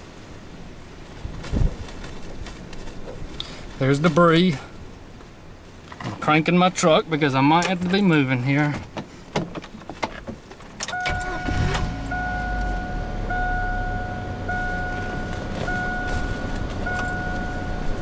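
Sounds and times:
truck engine starting and idling: 0:10.8 - 0:18.0
dashboard warning chime: 0:10.9 - 0:18.0.

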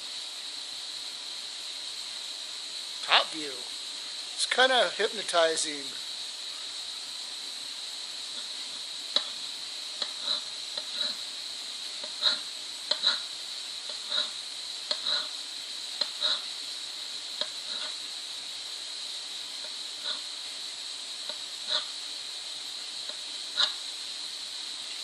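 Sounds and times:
pottery wheel whine: 0:00.0 - 0:25.0.

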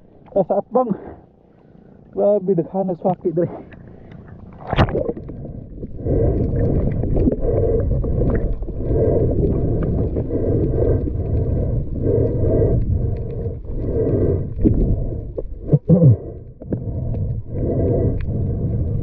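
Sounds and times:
muffled underwater water rushing: 0:03.0 - 0:19.0.

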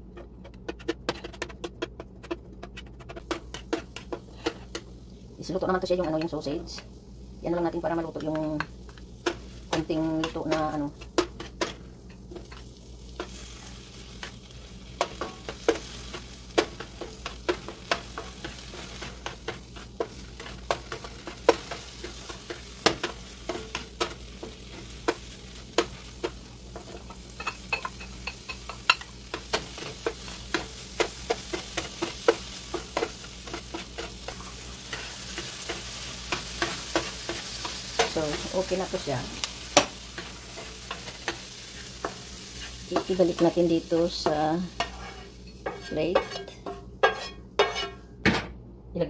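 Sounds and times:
plastic spatula scraping a pan: 0:00.0 - 0:04.8, 0:44.8 - 0:48.0
food sizzling in a frying pan: 0:03.1 - 0:48.2.

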